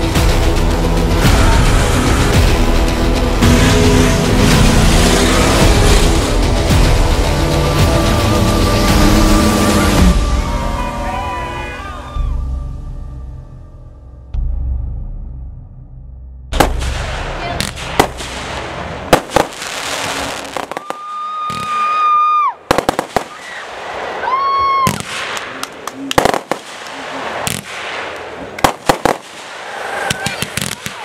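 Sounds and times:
sharp bangs and crackles: 0.0 - 10.2, 16.5 - 21.9, 22.6 - 24.2, 24.8 - 31.0.

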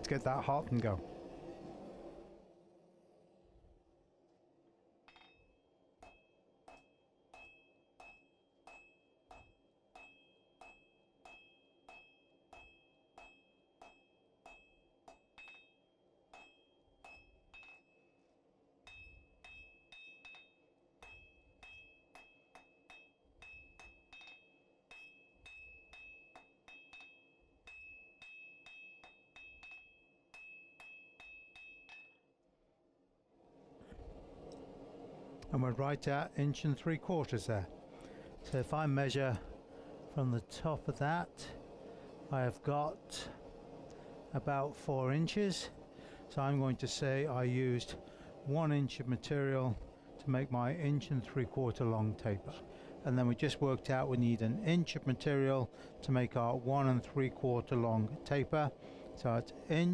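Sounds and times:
hammer striking steel on anvil: 5.1 - 18.2, 18.8 - 32.3.

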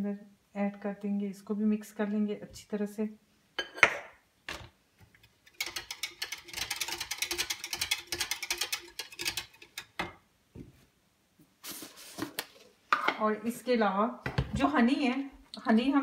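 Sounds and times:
whisk clicking against a jug: 5.5 - 10.0.

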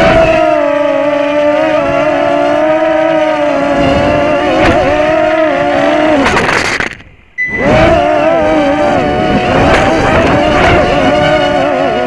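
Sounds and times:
quadcopter motors whining: 0.0 - 12.0.

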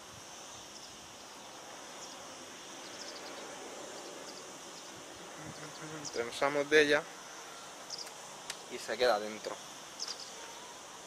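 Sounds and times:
steady background hiss: 0.0 - 11.0
faint high chirps: 10.0 - 11.0.

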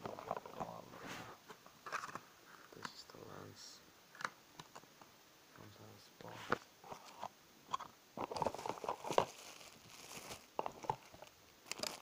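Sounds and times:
plastic packaging crinkling: 8.2 - 12.0.

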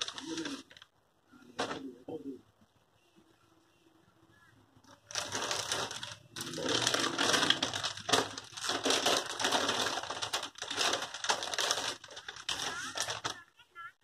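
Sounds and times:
plastic packaging crinkling: 0.0 - 0.9, 4.9 - 13.5.

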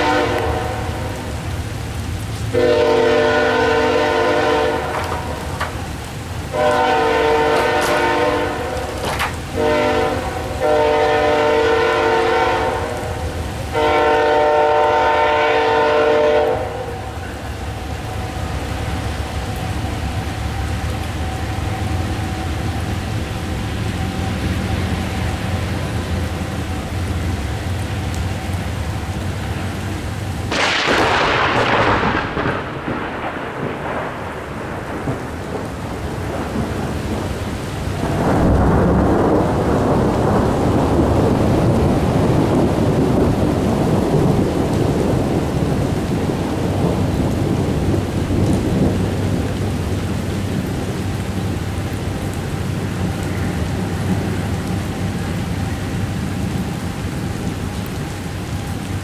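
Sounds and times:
rolling thunder rumble: 0.0 - 59.0
steady rain: 0.0 - 59.0
sharp thunder crack: 6.5 - 10.6, 30.5 - 49.5.

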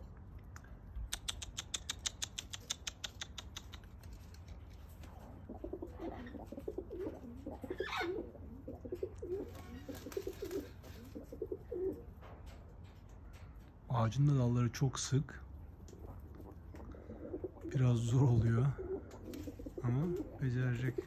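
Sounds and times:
rapid sharp clicks: 1.1 - 4.4
pigeons cooing: 5.0 - 12.2, 15.8 - 21.0.

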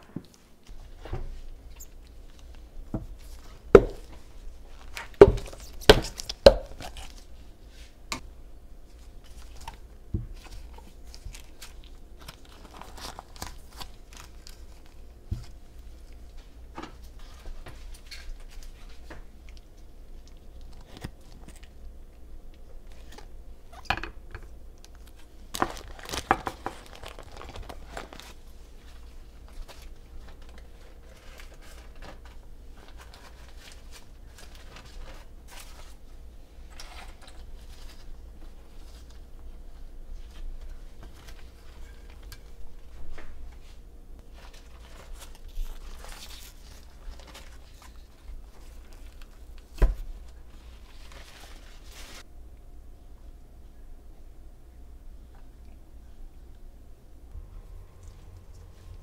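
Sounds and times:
crinkling: 8.9 - 23.8, 24.7 - 52.3.

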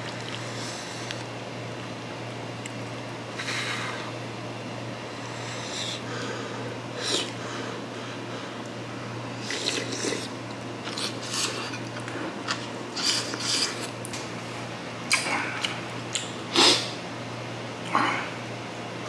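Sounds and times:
chewing and slurping: 0.0 - 1.2, 9.4 - 14.0
low steady hum: 0.0 - 19.0.

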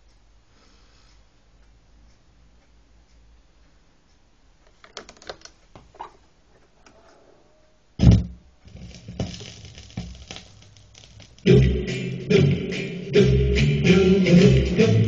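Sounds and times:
stylus thump: 8.0 - 11.5
vinyl surface crackle and pops: 8.0 - 11.5.

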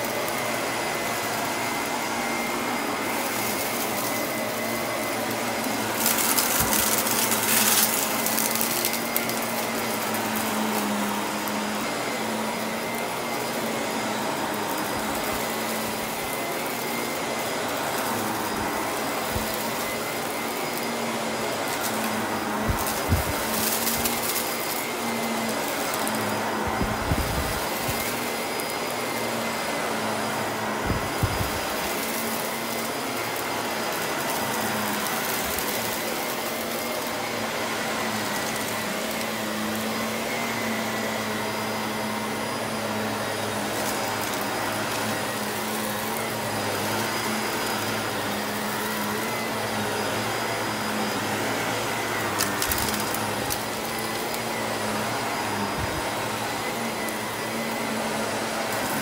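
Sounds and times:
vacuum cleaner running: 0.0 - 59.0.

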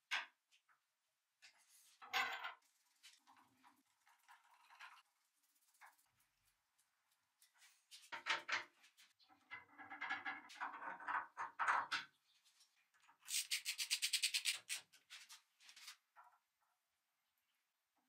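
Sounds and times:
rubbing strokes: 13.3 - 15.3.

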